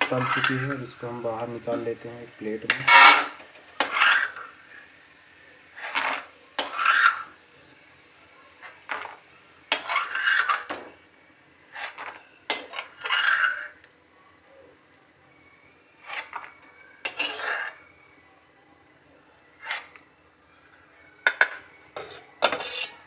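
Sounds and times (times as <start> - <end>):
steel spoon scraping and clinking: 9.7 - 10.7, 11.8 - 13.8, 16.0 - 17.8, 21.2 - 23.0.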